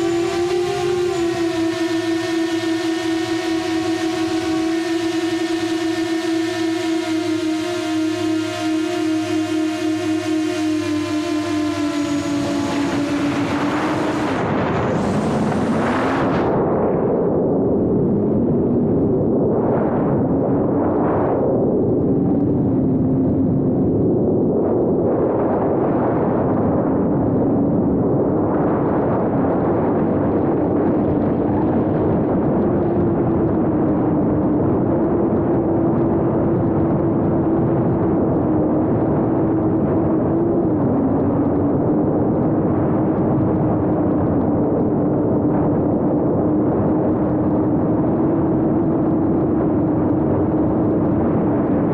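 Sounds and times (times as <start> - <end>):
quadcopter propellers humming: 0.0 - 18.2, 29.7 - 51.9
wind noise: 0.0 - 51.9.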